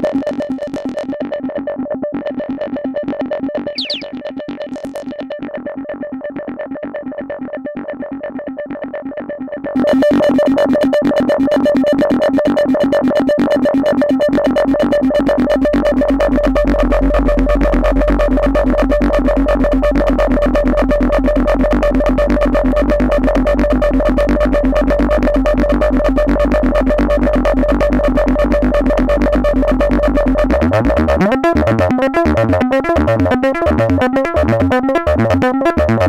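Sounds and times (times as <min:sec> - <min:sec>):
pulsing synthesizer tone: 0:03.8 - 0:04.1.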